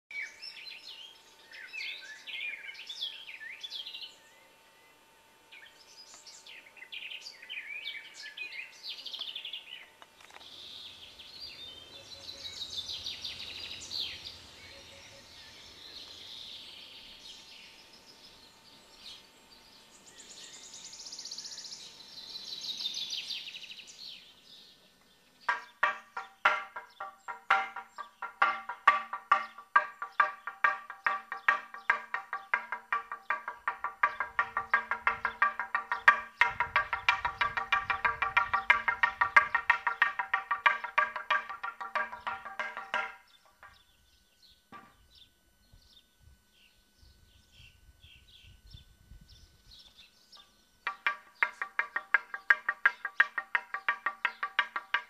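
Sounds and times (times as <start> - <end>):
songbirds chirping and trilling: 0.1 - 55.0
wooden board beaten with mallet: 25.5 - 43.8, 44.7 - 45.0, 50.8 - 55.0.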